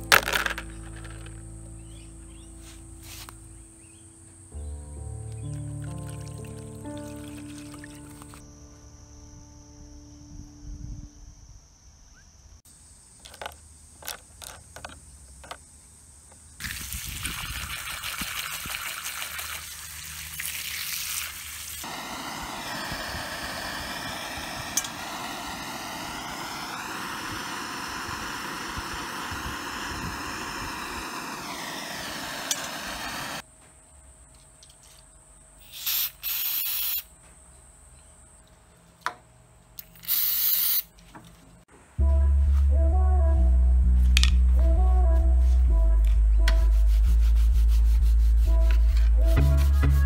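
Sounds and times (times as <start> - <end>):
blowtorch flame hissing: 21.8 - 33.4, 35.6 - 37.1, 39.9 - 40.8.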